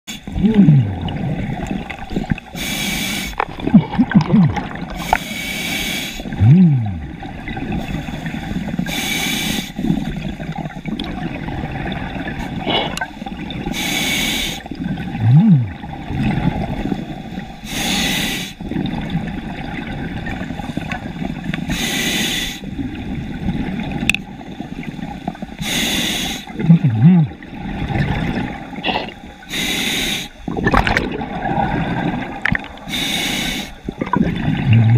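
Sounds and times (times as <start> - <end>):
exhaled bubbles gurgling: 0.1 - 5.4, 6.2 - 9.0, 9.8 - 13.9, 14.6 - 17.6, 18.6 - 21.8, 22.6 - 25.6, 26.4 - 29.6, 30.4 - 34.9
regulator hissing inhale: 2.5 - 3.4, 4.9 - 6.4, 7.9 - 9.8, 13.7 - 14.7, 17.6 - 18.6, 21.7 - 22.7, 25.6 - 26.6, 29.4 - 30.5, 32.8 - 34.0.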